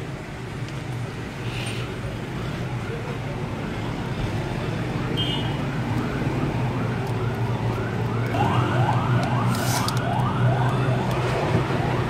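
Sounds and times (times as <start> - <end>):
electronic siren yelping: 7.8 - 12.0.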